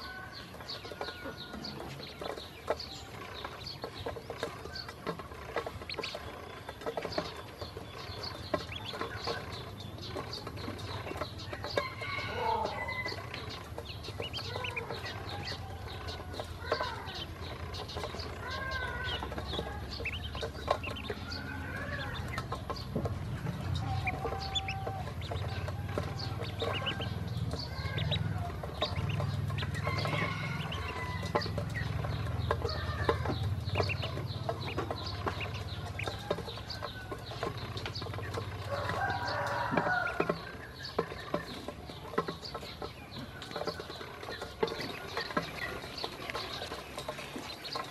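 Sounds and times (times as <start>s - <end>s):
bills pecking metal bowl: 0.0s - 47.9s
ducklings peeping: 0.0s - 47.9s.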